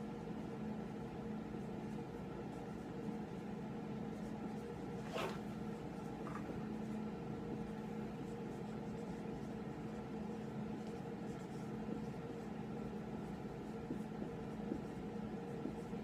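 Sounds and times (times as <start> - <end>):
low room hum: 0.0 - 16.0
marker pen writing on whiteboard: 7.5 - 16.0.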